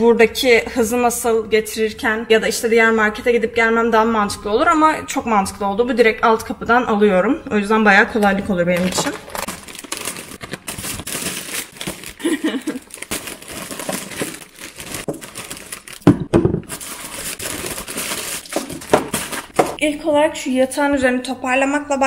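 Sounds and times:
plastic bag and packets rustling: 0:08.2 - 0:19.8.

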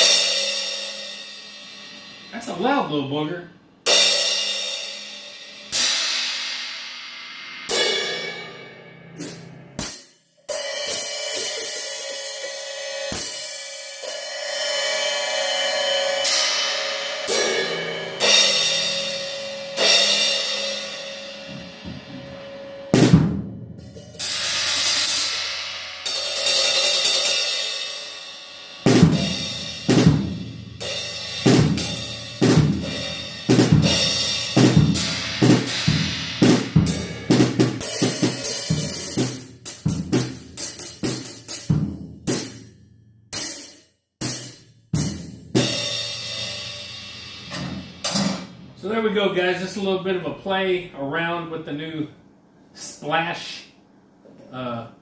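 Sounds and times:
bass drum: 0:21.4 - 0:24.5, 0:28.9 - 0:42.9, 0:44.2 - 0:48.8.

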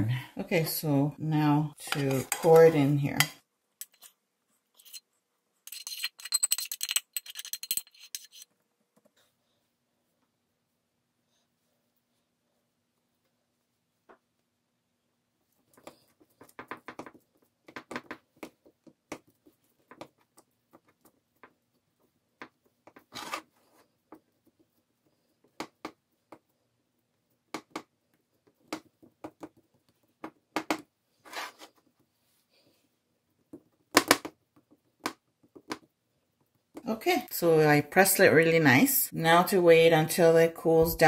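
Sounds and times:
spoon scraping and tapping pans: 0:01.8 - 0:04.2, 0:05.7 - 0:08.5.

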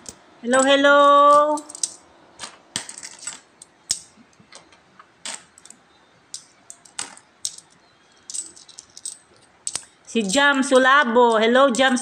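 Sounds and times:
coins clinking: 0:00.0 - 0:12.0.

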